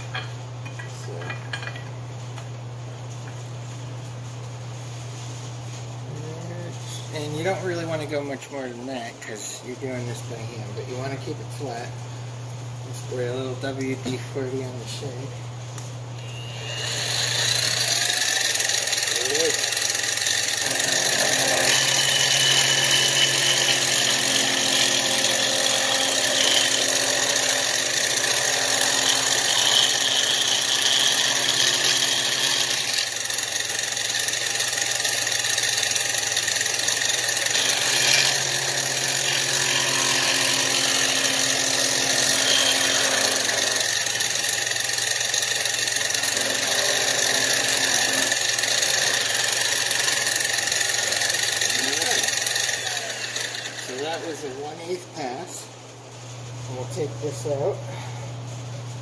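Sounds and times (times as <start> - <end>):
mill cutting aluminum: 16.2 - 55.0.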